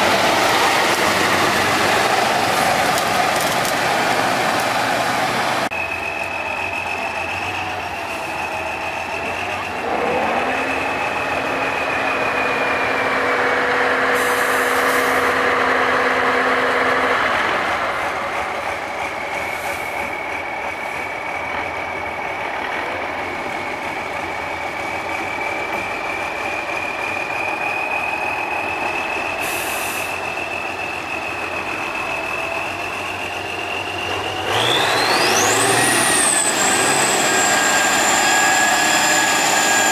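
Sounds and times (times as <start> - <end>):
diesel truck engine under load: 0.0 - 39.9
short high hisses: 29.4 - 30.2.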